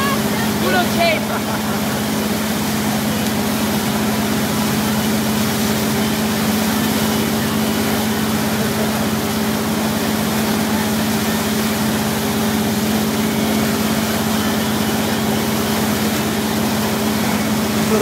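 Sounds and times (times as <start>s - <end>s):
boat engine droning: 0.0s - 18.0s
churning wake water: 0.0s - 18.0s
wind: 0.0s - 18.0s.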